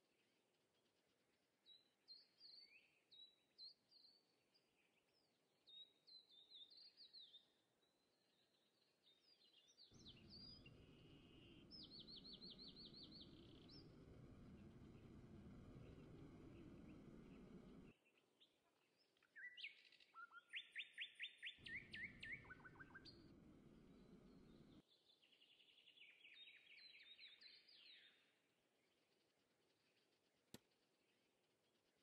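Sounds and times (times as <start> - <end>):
songbird chirping and trilling: 8.3 - 28.3
low background rumble: 10.0 - 18.0, 21.6 - 24.8.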